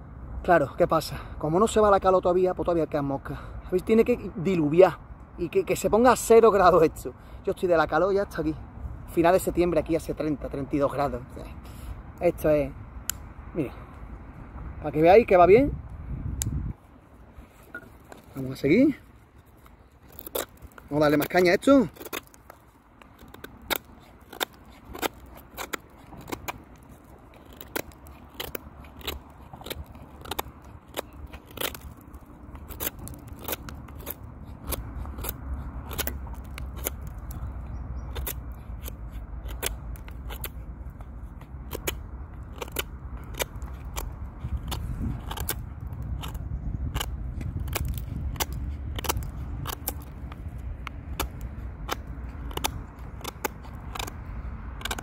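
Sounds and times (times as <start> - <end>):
knife carving wood: 17.4 - 55.0
wood chips cracking: 19.5 - 37.5.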